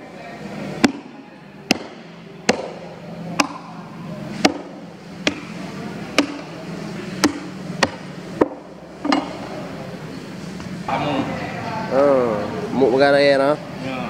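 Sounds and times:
heavy knife chopping fish: 1.7s - 2.8s, 4.4s - 5.5s, 6.1s - 6.5s, 7.2s - 8.6s.

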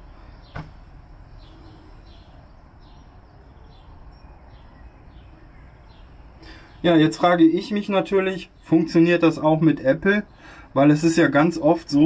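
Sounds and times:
low background noise: 0.0s - 12.0s
bird chirps: 1.3s - 9.2s.

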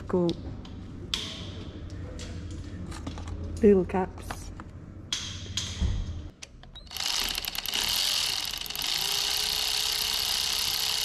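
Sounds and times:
power ratchet rattling: 6.8s - 11.0s.

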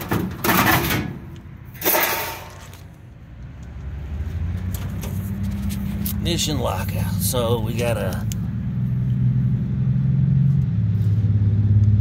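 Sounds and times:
sheet metal scraping and clattering: 0.0s - 2.8s.

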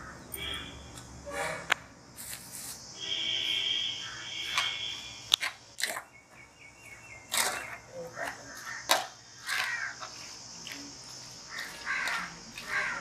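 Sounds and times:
high insect drone: 0.0s - 5.8s, 6.5s - 13.0s
drawn-out high call: 3.0s - 5.3s.

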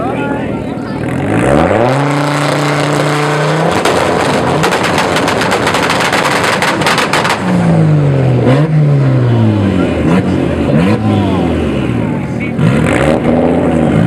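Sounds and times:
car engine revving: 0.8s - 14.0s
exhaust pops and bangs: 3.6s - 7.7s.

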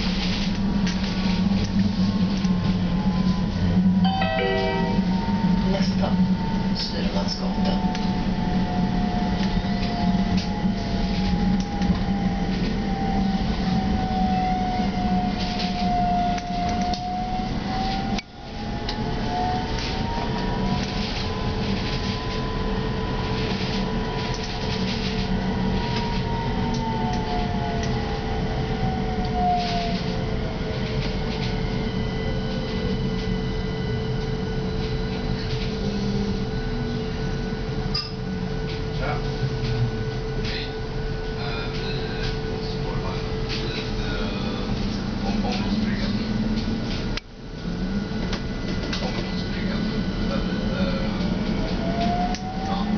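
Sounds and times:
electric drive whine: 0.0s - 52.9s
tram running gear rumble: 0.0s - 52.9s
whine gliding down in pitch: 3.0s - 6.7s.

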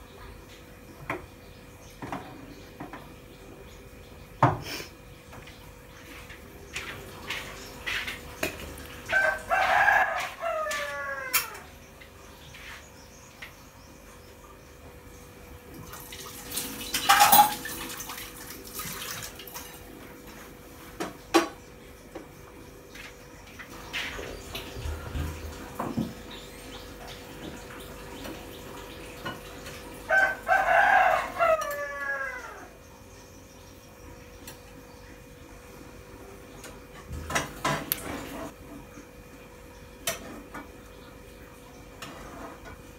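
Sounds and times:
rooster crowing: 9.1s - 11.8s, 30.0s - 32.8s
dishes clicking: 16.9s - 17.8s.

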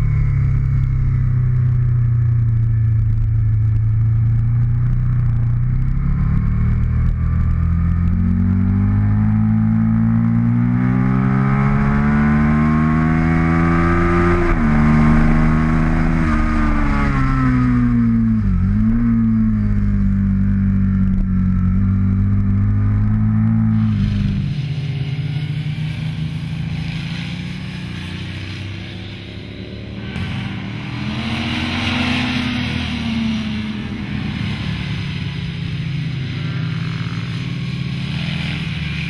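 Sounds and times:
motorcycle engine at racing speed: 0.0s - 39.0s.

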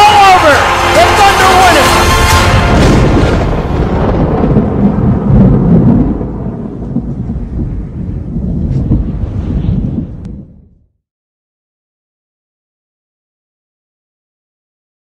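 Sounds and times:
thunder rumbling: 0.0s - 10.9s.

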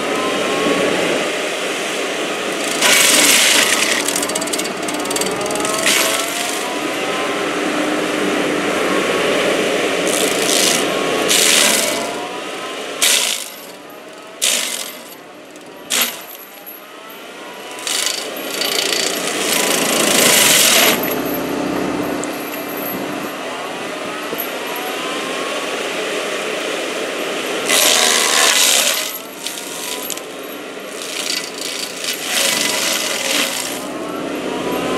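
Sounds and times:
stump grinder grinding wood: 2.3s - 7.3s, 10.0s - 16.5s, 17.4s - 23.6s, 27.6s - 34.9s.

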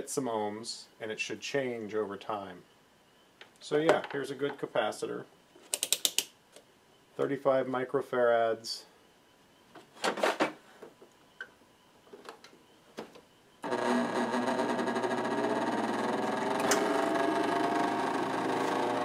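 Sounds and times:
dehumidifier humming: 6.5s - 19.0s.

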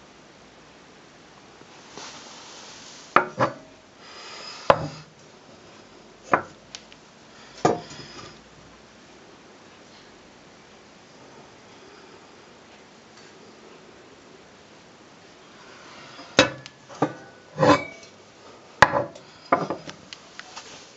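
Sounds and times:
metal scraping on floor: 15.6s - 18.2s.

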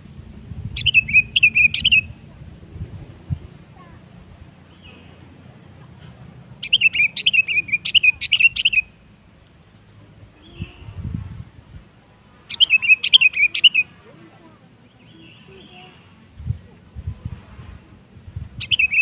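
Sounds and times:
bulbul chirping song: 0.6s - 2.3s, 6.6s - 9.1s, 12.5s - 16.0s, 18.6s - 19.0s.

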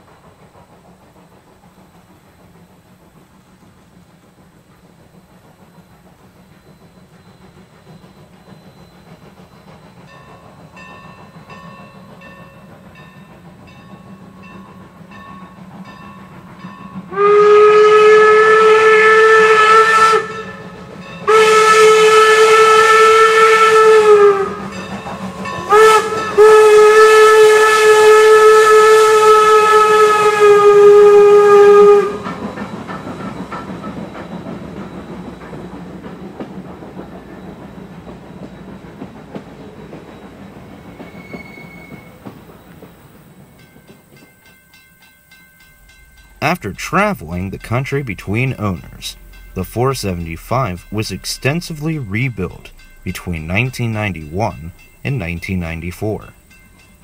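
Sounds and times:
faint rhythmic train approaching: 0.0s - 57.0s
passenger cars rolling on rails: 0.0s - 57.0s
steam locomotive whistle blasts: 17.0s - 35.6s, 37.2s - 42.9s, 45.8s - 56.9s.

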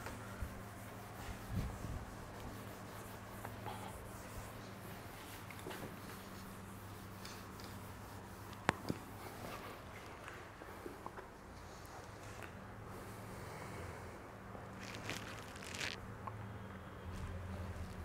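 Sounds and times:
eraser rubbing whiteboard: 0.5s - 8.6s.

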